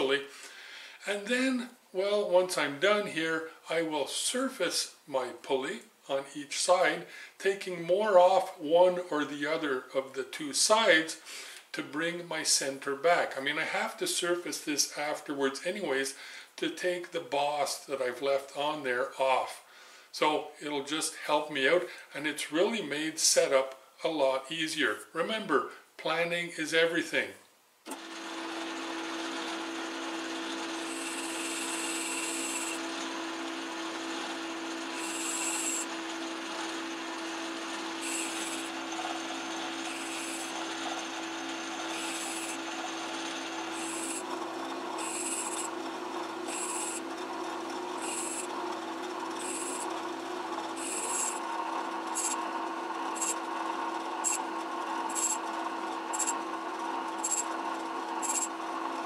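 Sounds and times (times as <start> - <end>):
lathe tool cutting hiss: 27.9 - 45.8, 46.4 - 47.1, 47.9 - 48.6, 49.4 - 49.9, 50.7 - 51.5, 52.1 - 52.4, 53.1 - 53.4, 54.1 - 55.4, 56.1 - 56.4, 57.2 - 58.5
metal lathe humming: 27.9 - 59.0.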